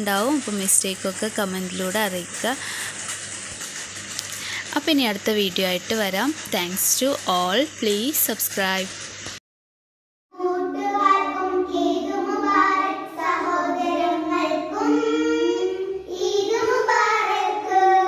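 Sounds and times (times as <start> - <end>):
child singing: 10.4 - 18.0.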